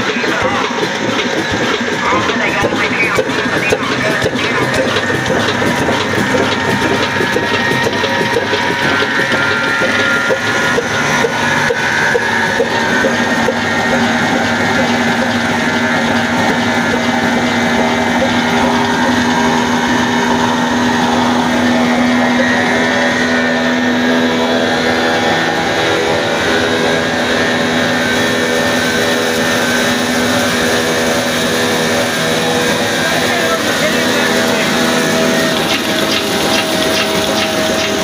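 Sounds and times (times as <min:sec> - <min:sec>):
diesel engine running: 0:00.0 - 0:38.0
flywheel and belts driving grinder: 0:00.0 - 0:38.0
steady hum: 0:00.0 - 0:38.0.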